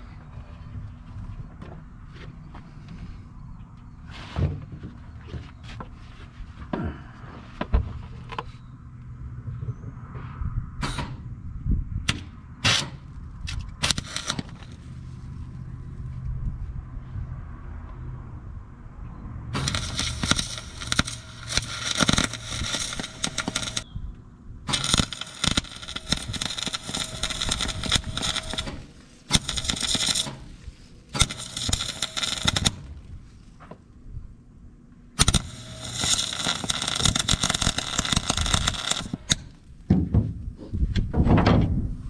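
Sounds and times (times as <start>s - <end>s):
arc welding crackling: 12.1s - 15.3s, 19.5s - 23.9s, 24.7s - 33.6s, 35.2s - 39.8s.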